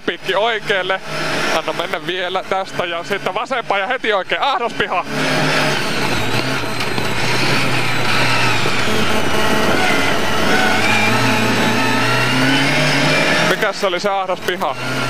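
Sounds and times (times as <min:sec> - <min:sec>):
car engine running hard: 0:00.0 - 0:15.0.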